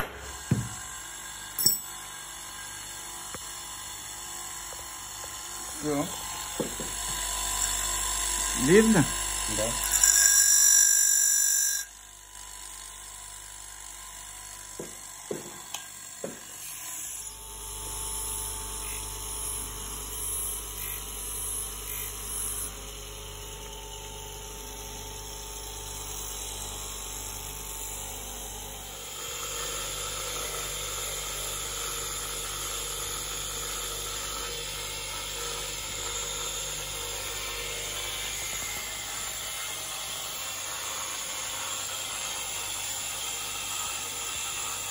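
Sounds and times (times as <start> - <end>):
grinding wheel running: 4.0 - 17.2
grinding wheel hissing grind: 8.5 - 10.7.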